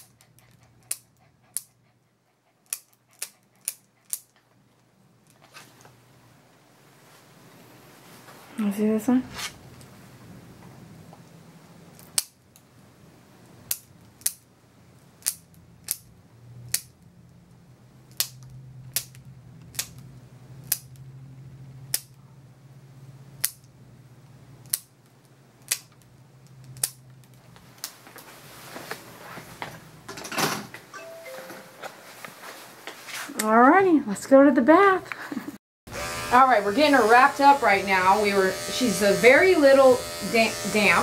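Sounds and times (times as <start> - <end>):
nail clippers clicking: 12.0 - 12.4, 13.7 - 14.4, 15.2 - 16.1, 16.7 - 17.0, 20.6 - 21.0, 21.9 - 22.2, 23.4 - 23.7, 24.6 - 24.9, 25.6 - 26.0, 26.6 - 27.0
rustling: 31.8 - 33.4.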